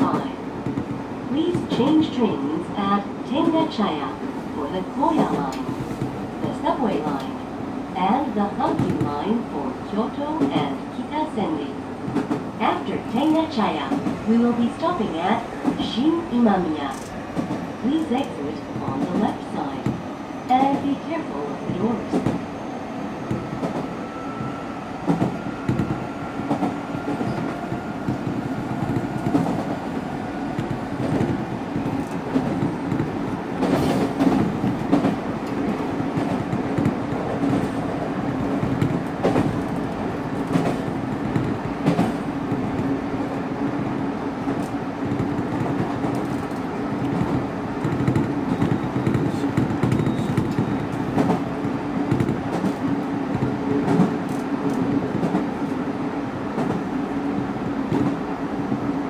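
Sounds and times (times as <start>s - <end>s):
wheels rumbling on rail: 0.0s - 59.0s.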